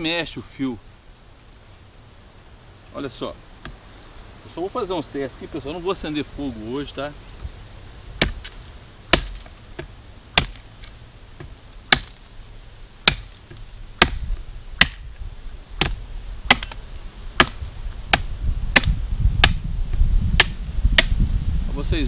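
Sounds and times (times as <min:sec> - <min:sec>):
machete chopping wood: 0:08.2 - 0:12.3, 0:13.0 - 0:15.1, 0:15.8 - 0:16.8, 0:17.4 - 0:19.7, 0:20.3 - 0:21.2.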